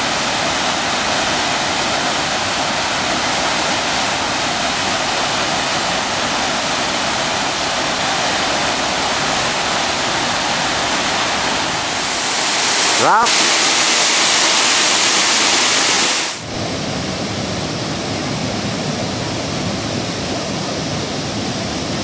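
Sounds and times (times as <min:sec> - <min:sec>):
water rushing over rocks: 0:00.0 - 0:16.5.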